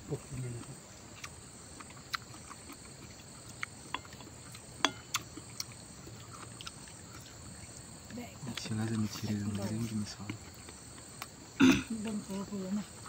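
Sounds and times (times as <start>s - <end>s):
insects droning: 0.0s - 13.0s
wet eating clicks and smacks: 0.6s - 7.9s.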